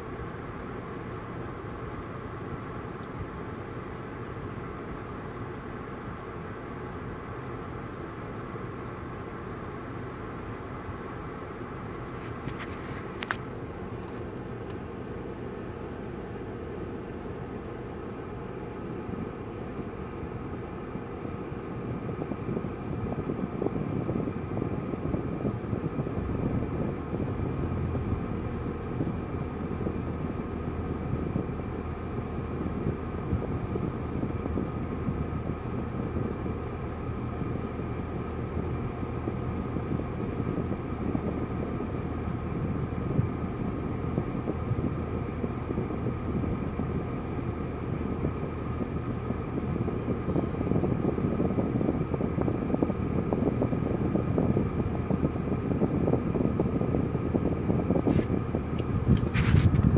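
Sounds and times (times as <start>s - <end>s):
car idling from inside: 0.0s - 59.9s
faint steady whine: 0.0s - 59.9s.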